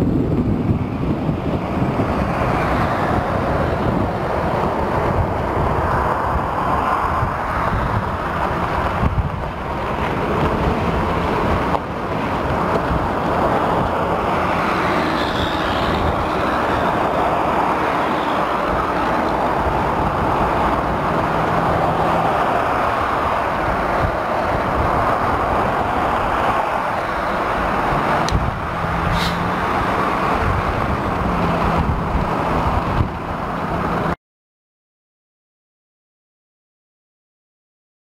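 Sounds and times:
wind noise on microphone: 0:00.0 - 0:34.2.

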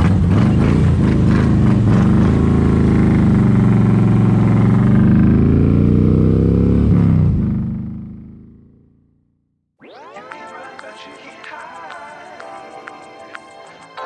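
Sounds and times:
motorcycle engine accelerating: 0:00.0 - 0:09.7.

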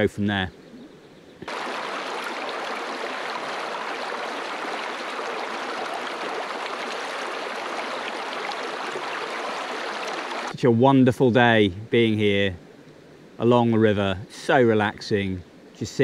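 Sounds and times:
river water flowing over rocks: 0:01.4 - 0:10.5.

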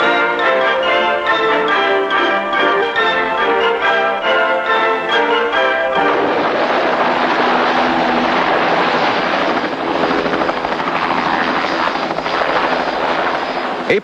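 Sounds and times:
helicopter rotor and engine: 0:00.0 - 0:14.0.

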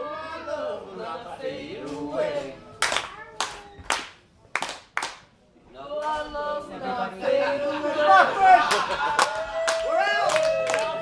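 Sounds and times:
sharp hand claps: 0:02.8 - 0:05.3, 0:08.7 - 0:11.0
voices: 0:05.7 - 0:11.0.

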